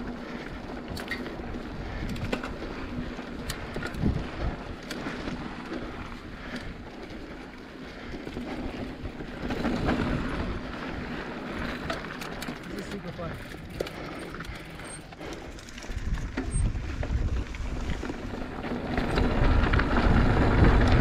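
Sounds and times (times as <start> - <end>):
bike clicks and rattles: 0.0 - 21.0
tyres rolling on dirt: 0.0 - 21.0
wind rushing over microphone: 1.4 - 6.9, 15.8 - 21.0.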